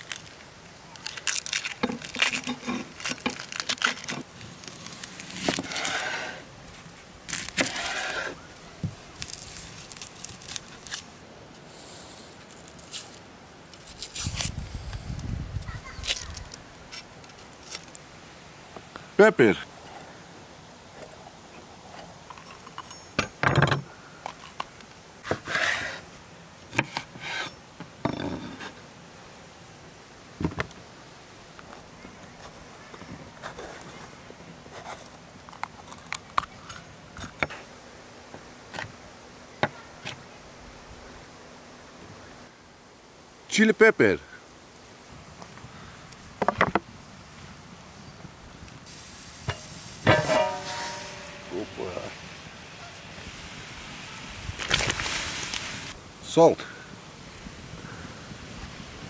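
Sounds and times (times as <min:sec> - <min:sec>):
onion skin crackling and tearing: 0:00.0 - 0:06.0, 0:07.3 - 0:08.0, 0:09.1 - 0:11.2, 0:12.5 - 0:14.6, 0:16.0 - 0:18.0, 0:54.6 - 0:55.9
knife cutting peppers on wooden board: 0:07.5 - 0:08.4.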